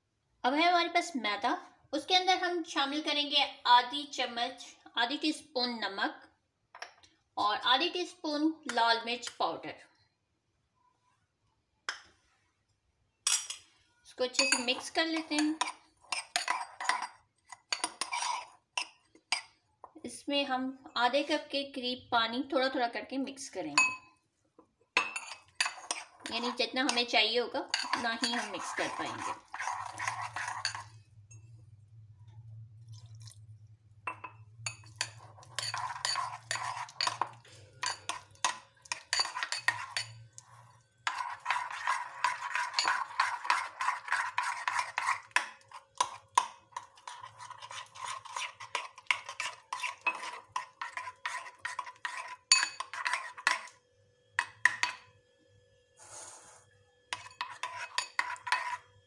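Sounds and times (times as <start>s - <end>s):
metal spoon stirring in ceramic bowl: 13.2s - 20.1s, 23.5s - 24.2s, 24.9s - 53.8s, 54.4s - 55.1s, 57.1s - 59.0s.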